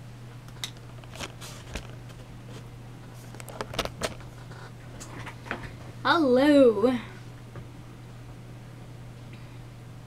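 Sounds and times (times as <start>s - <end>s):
low electrical hum: 0.0s - 10.0s
clicks and rustles of handling: 0.5s - 5.8s.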